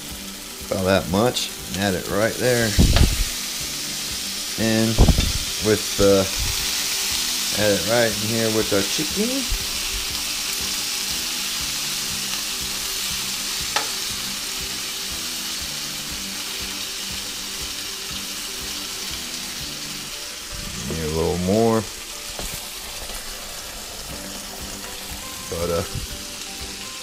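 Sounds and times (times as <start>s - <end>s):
chicken sizzling in a frying pan: 0.0s - 27.0s
pieces moved around in pan: 22.0s - 26.6s.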